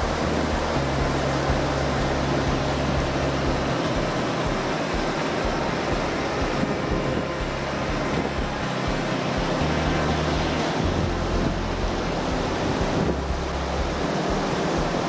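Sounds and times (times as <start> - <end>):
river water rushing: 0.0 - 15.0
wind rumble on microphone: 0.0 - 15.0.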